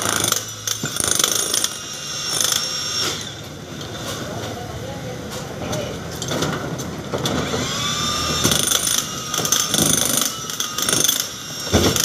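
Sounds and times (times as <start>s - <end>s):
jackhammer breaking concrete: 0.0s - 3.3s, 7.2s - 12.0s.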